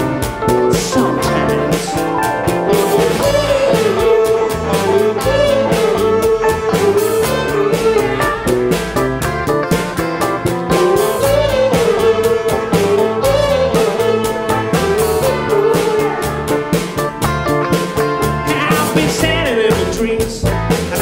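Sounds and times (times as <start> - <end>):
live band playing: 0.0 - 21.0
trumpet melody: 1.0 - 9.0, 10.7 - 17.0.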